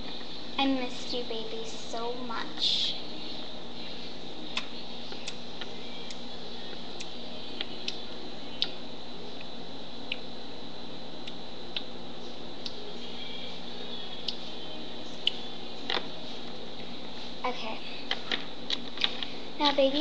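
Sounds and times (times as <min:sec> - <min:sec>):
faint high whine: 0:00.0 - 0:20.0.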